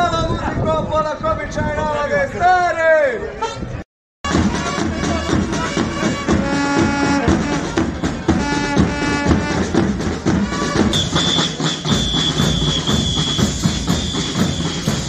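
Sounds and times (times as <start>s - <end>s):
brass band playing a march: 4.3s - 15.0s
drum strikes: 4.3s - 15.0s.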